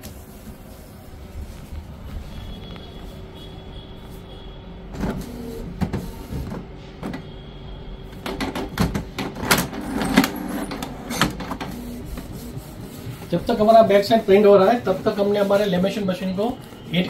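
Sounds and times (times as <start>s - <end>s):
printer motor whirring: 4.0s - 17.0s
printer clicks and knocks: 8.2s - 11.8s.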